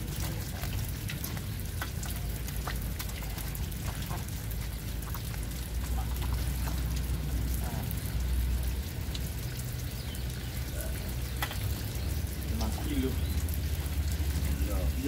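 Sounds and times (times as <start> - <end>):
fish slapping wetly: 0.0 - 8.2
water dripping from crates: 0.0 - 15.0.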